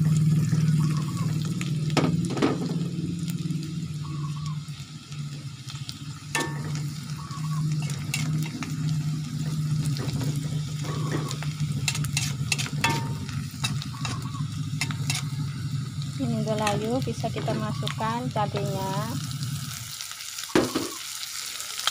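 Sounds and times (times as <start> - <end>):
steady low hum: 0.0 - 19.9
garlic sizzling in hot oil: 0.0 - 21.9
metal spatula scraping wok: 6.3 - 19.8.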